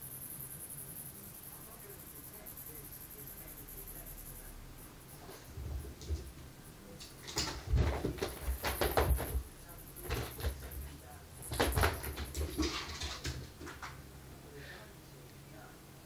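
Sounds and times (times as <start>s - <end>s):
cicada buzzing: 0.0s - 5.2s
cat pouncing on carpet: 7.1s - 14.0s.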